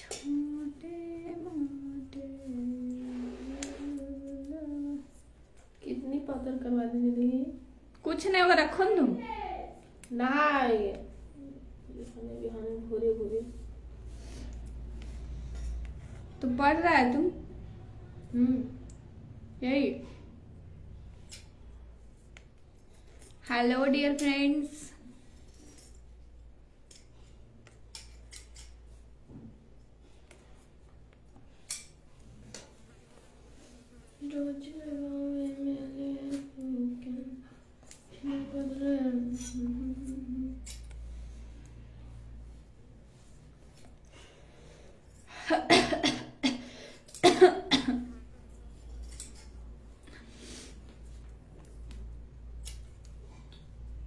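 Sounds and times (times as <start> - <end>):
low steady hum: 0.0 - 54.0
woman coughing: 45.4 - 48.2
knitting needles clicking: 51.6 - 53.6.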